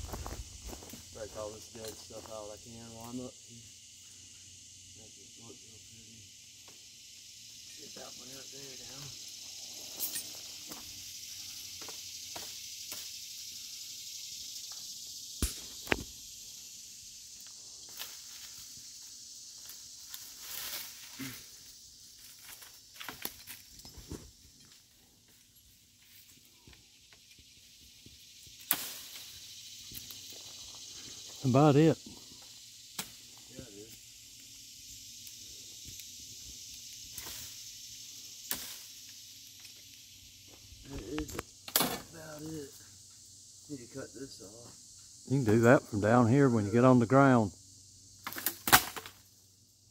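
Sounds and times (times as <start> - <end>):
steady high hiss: 0.0 - 49.9
branches snapping: 48.2 - 49.2.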